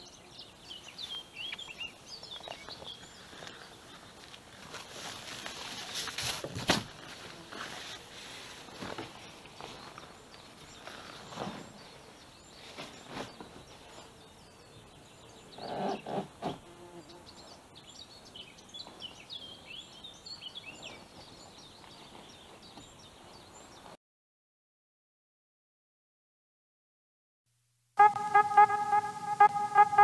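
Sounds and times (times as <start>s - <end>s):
small birds chirping: 0.0s - 5.9s, 8.8s - 24.0s.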